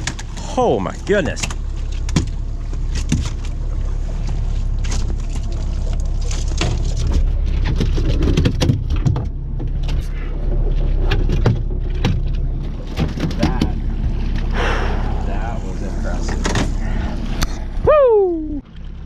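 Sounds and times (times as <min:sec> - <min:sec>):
outboard motor running: 0:00.0 - 0:19.0
knocks and clatter on deck: 0:06.6 - 0:09.9, 0:11.1 - 0:13.8.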